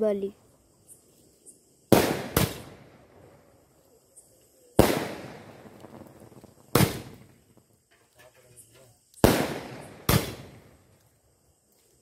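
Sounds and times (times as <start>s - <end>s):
fireworks bursting with echo: 1.9s - 3.6s, 4.6s - 7.8s, 9.2s - 10.9s.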